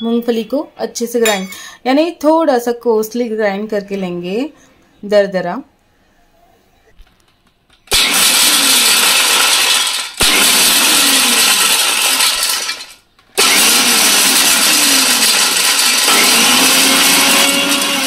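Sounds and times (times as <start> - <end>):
mixer grinder motor running: 7.9 - 18.0
nuts rattling in steel jar: 8.0 - 13.0.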